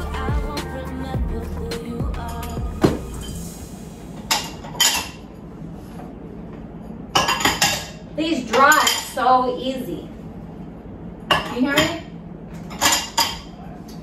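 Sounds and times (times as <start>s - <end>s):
dishes clattering: 4.3s - 5.2s, 7.2s - 9.2s, 12.6s - 13.6s.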